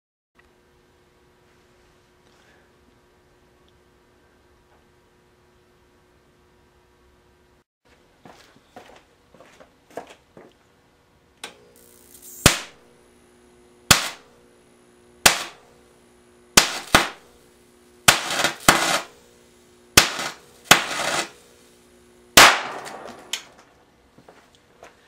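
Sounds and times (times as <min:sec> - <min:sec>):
steady hum: 0:00.4 - 0:25.0
faint high whine: 0:10.8 - 0:25.0
sharp electric discharge cracks: 0:11.8 - 0:12.9, 0:13.8 - 0:14.4, 0:15.2 - 0:15.7, 0:16.5 - 0:17.4, 0:18.0 - 0:19.2, 0:19.9 - 0:23.6.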